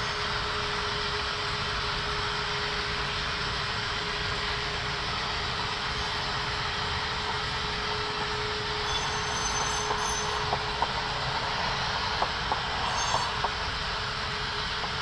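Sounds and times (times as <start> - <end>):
high wheel squeals: 0.0 - 1.0, 7.9 - 10.6, 12.7 - 13.5
model train running: 0.0 - 15.0.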